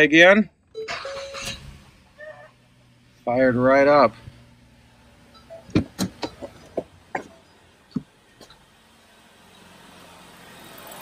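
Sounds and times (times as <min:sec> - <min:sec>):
car engine idling: 0:00.0 - 0:11.0
sharp knocks and clicks: 0:05.7 - 0:08.6.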